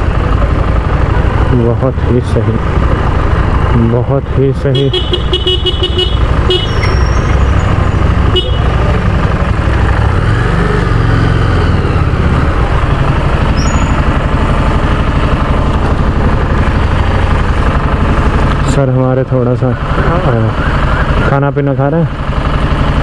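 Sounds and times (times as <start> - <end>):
motorcycle engine running at low speed: 0.0 - 23.0.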